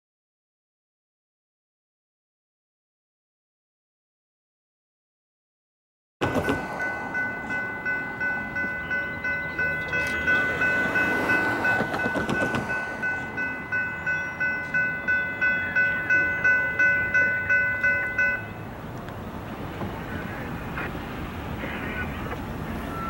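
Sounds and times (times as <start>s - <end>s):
railroad crossing bell ringing: 6.2s - 23.0s.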